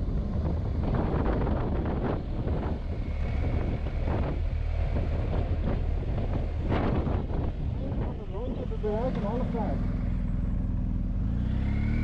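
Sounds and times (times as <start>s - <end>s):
wind buffeting microphone: 0.0s - 8.9s
low motorcycle rumble: 0.0s - 12.0s.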